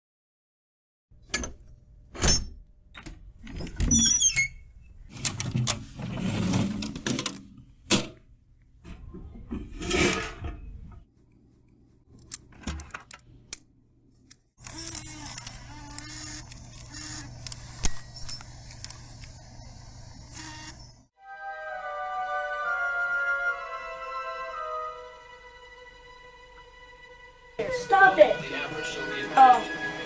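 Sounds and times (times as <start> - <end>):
short squeak: 3.9 - 4.9.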